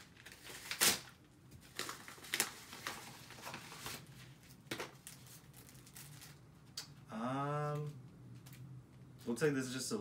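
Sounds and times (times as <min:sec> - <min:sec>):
mailer package crinkling: 0:00.0 - 0:04.1.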